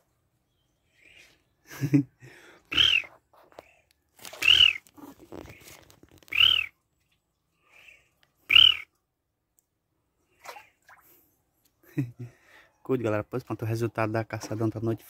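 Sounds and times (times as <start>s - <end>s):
ducks whistled calls: 2.7s - 3.2s, 4.4s - 4.9s, 6.3s - 6.8s, 8.5s - 8.9s.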